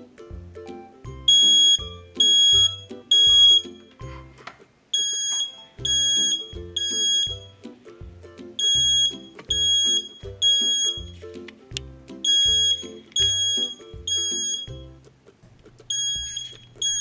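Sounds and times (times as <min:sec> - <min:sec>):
smoke alarm beeping: 0:01.3 - 0:03.8, 0:05.0 - 0:07.5, 0:08.6 - 0:11.2, 0:12.2 - 0:14.9, 0:15.9 - 0:17.0.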